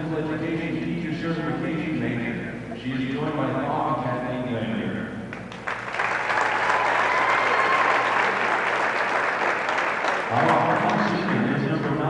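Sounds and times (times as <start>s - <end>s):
man's voice: 0.0s - 5.2s, 10.3s - 12.0s
crowd applauding: 5.4s - 11.7s.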